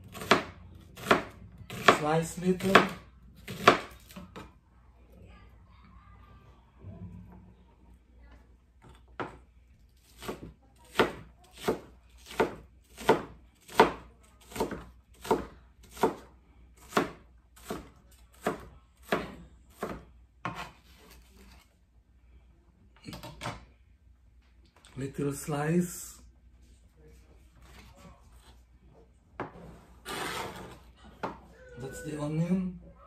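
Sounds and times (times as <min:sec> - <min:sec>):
knife chopping onion on board: 0:00.1 - 0:04.5, 0:10.1 - 0:21.6.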